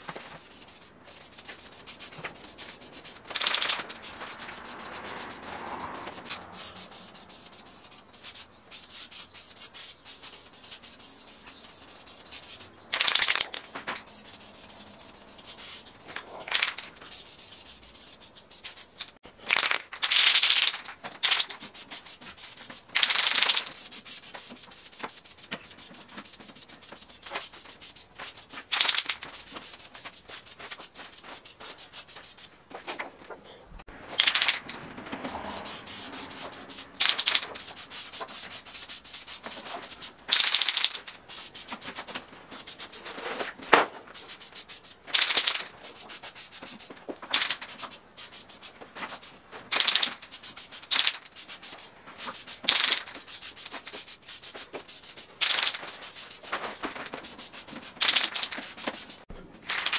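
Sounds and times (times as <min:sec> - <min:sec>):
spray paint can hissing: 0:00.0 - 0:32.6, 0:34.1 - 0:59.9.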